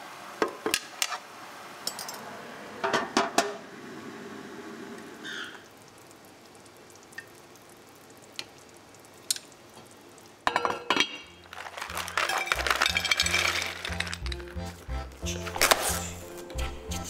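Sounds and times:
pot lid clattering: 0:10.5 - 0:11.4
background music: 0:11.4 - 0:17.0.

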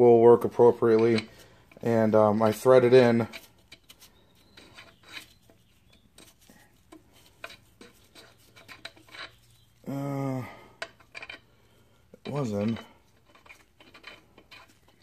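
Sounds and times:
small steel screws clinking: 0:07.4 - 0:09.6, 0:10.8 - 0:11.6, 0:12.2 - 0:15.0
man humming: 0:09.8 - 0:10.6.

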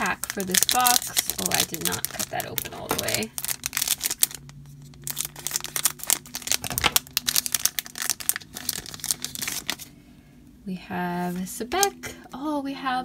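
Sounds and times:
foil wrapper crinkling: 0:00.0 - 0:10.0.

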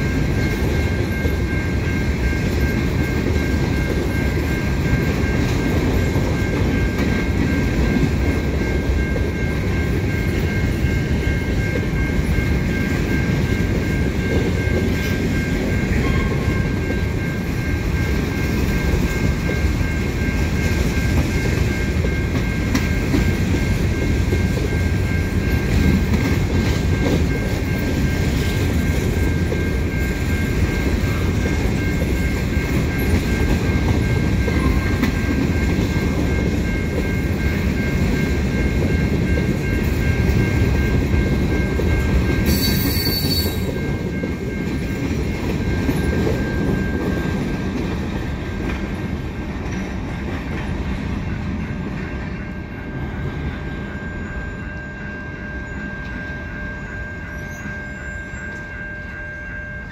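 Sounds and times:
train wheels rumbling on rails: 0:00.0 - 0:59.9
high steady squeal: 0:52.4 - 0:59.9.

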